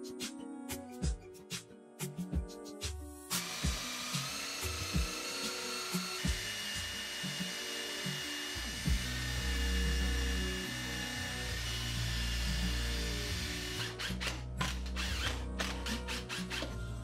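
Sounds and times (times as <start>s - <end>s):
impact driver driving screws: 3.4s - 9.3s, 10.9s - 16.8s.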